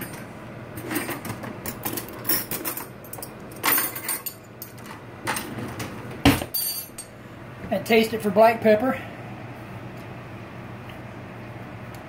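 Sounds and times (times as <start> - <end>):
metal cutlery clinking: 0.8 - 5.5.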